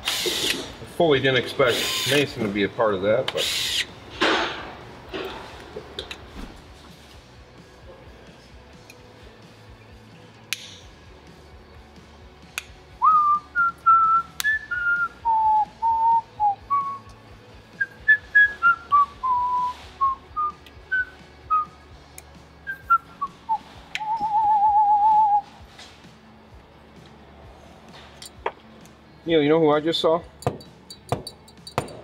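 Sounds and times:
person whistling a tune: 13.0s - 17.1s, 17.7s - 21.8s, 22.6s - 25.5s.

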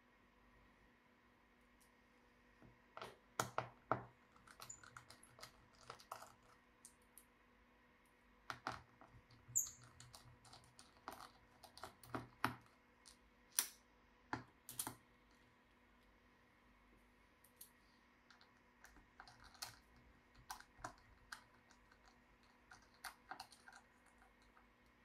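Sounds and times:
faint squeak: 9.5s - 10.1s.

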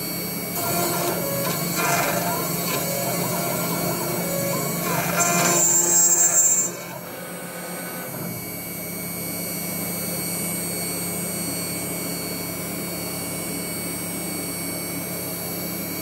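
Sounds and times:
router spindle whining: 0.3s - 9.0s
endmill cutting steel: 0.4s - 8.4s.

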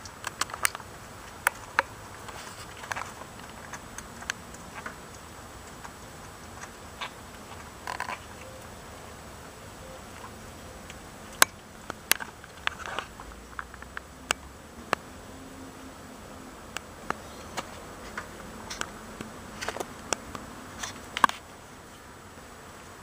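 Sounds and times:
kitten chewing and crunching: 0.0s - 8.6s.

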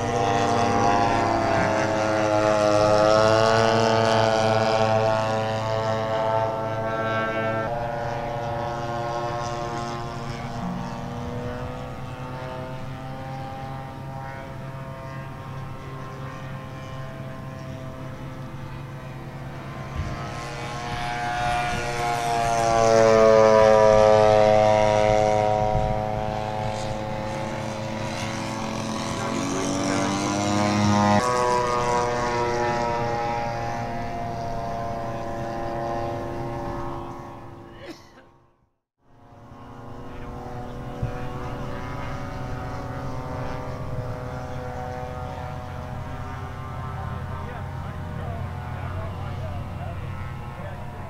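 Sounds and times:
model airplane engine passing by: 0.0s - 51.0s.

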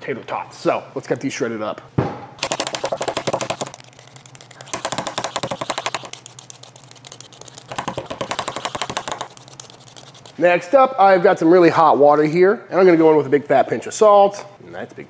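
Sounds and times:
peeler scraping potato: 2.8s - 10.5s.

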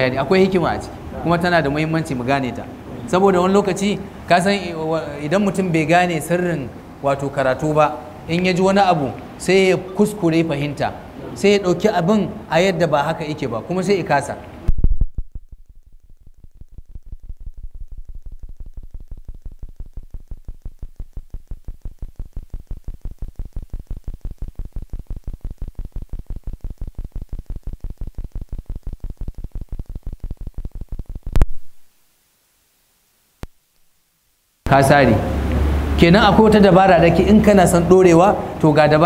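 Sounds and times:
buzzy electronic pulsing: 14.8s - 31.9s.

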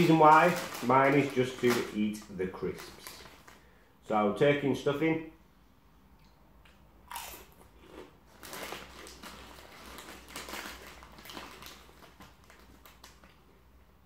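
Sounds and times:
crisp being chewed: 6.2s - 13.6s.

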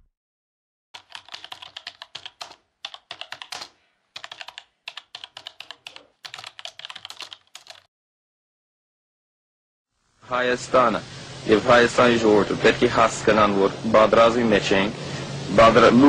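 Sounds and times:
keyboard typing clicks: 1.0s - 7.9s.

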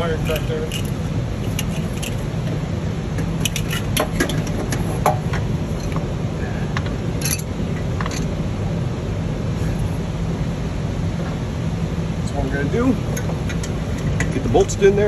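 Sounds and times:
low background hum: 0.0s - 15.0s
light metallic clicks and clinks: 7.2s - 8.3s.

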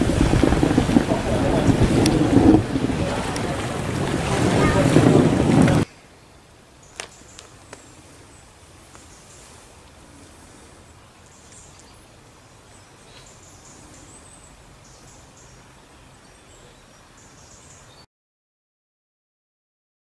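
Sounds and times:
steady low rumble: 0.0s - 5.9s.

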